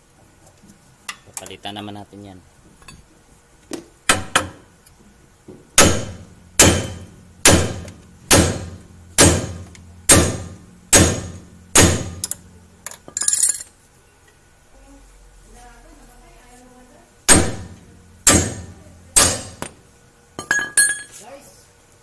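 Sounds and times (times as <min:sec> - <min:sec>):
hammer striking steel: 0:05.8 - 0:12.4, 0:17.3 - 0:19.8.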